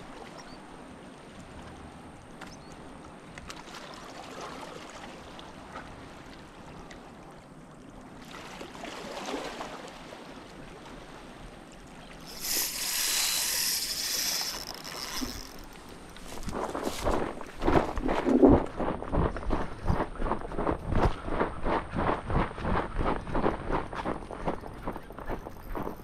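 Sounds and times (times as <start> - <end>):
shallow water washing: 2.9 - 26.0
fishing reel clicking: 12.2 - 16.3, 25.0 - 26.0.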